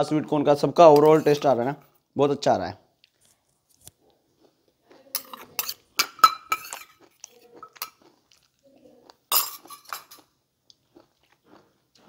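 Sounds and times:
spoon clinking in metal bowl: 0.9 - 1.6, 5.1 - 8.0, 9.3 - 10.3.

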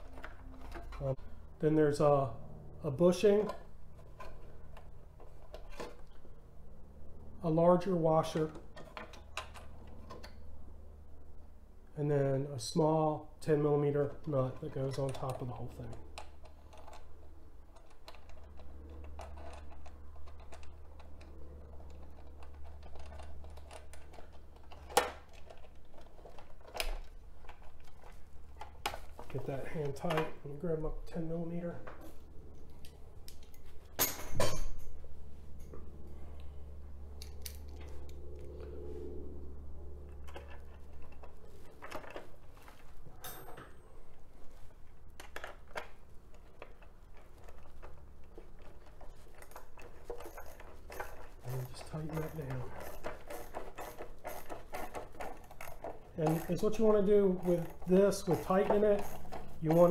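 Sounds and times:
steady low hum: 0.0 - 59.9
plastic parts clicking and rattling: 14.2 - 30.3, 45.1 - 59.9.

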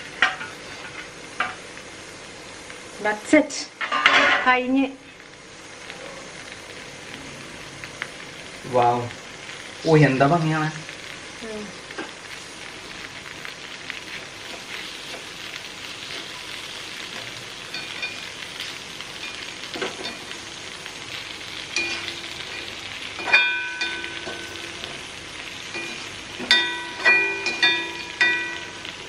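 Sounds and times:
food sizzling in a frying pan: 0.0 - 29.0
spatula clinking against pan: 23.2 - 24.6, 25.8 - 28.8.

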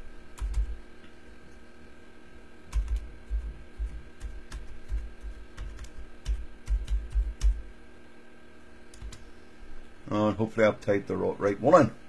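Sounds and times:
keyboard keystrokes: 2.7 - 3.1, 4.2 - 7.6, 8.9 - 9.2.

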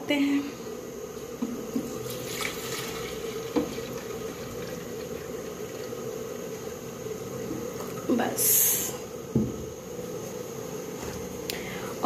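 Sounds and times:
milk pouring: 1.8 - 8.1.

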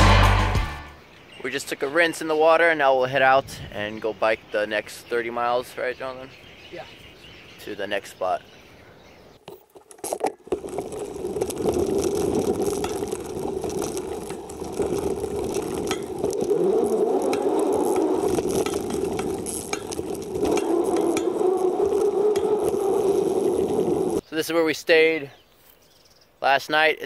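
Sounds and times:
bicycle tyre and ride noise: 9.3 - 24.2
bicycle frame and bags rattling: 9.4 - 24.2.

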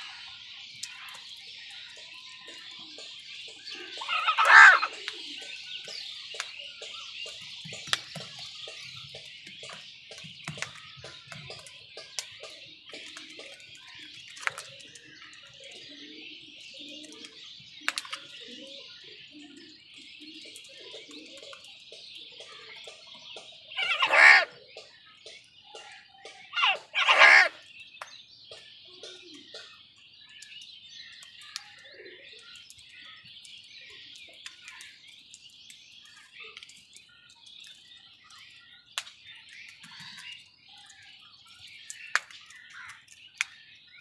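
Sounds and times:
crows cawing: 3.8 - 5.0, 23.8 - 24.6, 26.5 - 27.7.

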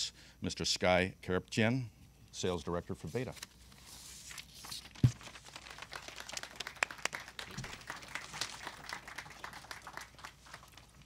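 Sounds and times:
audience applause: 5.4 - 11.0.

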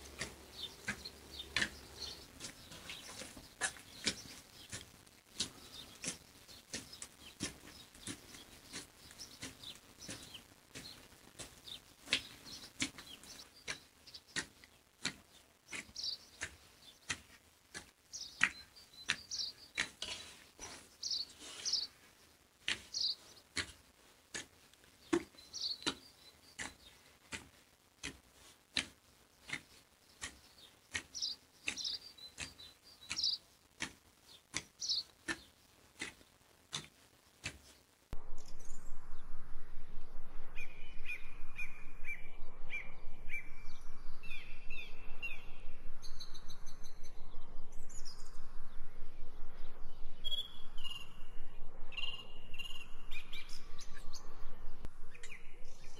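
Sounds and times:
birds chirping: 0.0 - 23.8, 24.8 - 27.2, 29.3 - 36.3, 40.2 - 55.9
hands kneading dough: 0.0 - 38.0.

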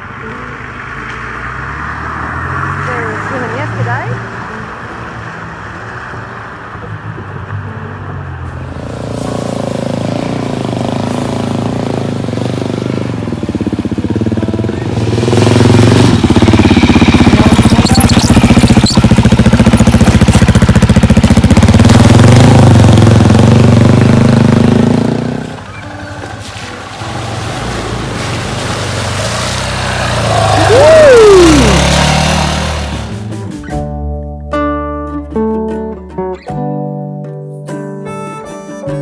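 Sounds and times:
dirt bike engine revving: 14.6 - 33.3.

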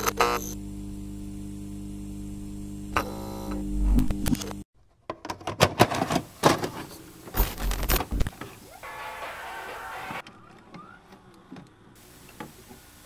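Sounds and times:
electric hum with held tones: 0.0 - 4.6, 7.0 - 10.2
glitchy clicks and crackles: 7.3 - 10.3.

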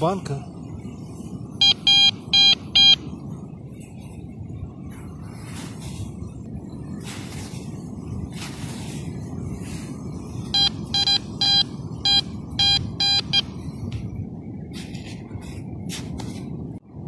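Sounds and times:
metal detector beeping: 1.6 - 3.0, 10.6 - 13.5.

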